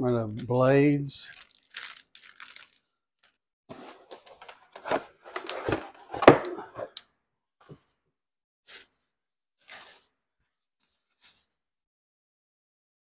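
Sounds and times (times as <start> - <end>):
bubble wrap rustling: 1.2 - 5.8
cardboard box handled on workbench: 3.7 - 6.9.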